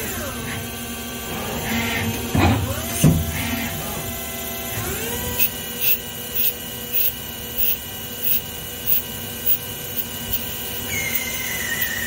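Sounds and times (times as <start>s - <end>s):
lathe spindle whine: 0.0s - 12.0s
high bearing squeal: 10.3s - 12.0s.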